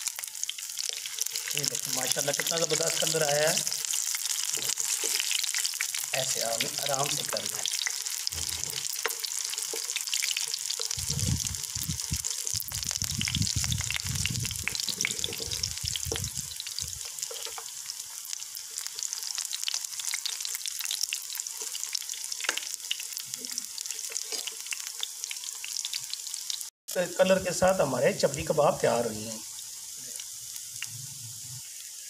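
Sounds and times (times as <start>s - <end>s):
food sizzling in oil: 0.0s - 32.0s
dull low bumps: 11.0s - 17.0s.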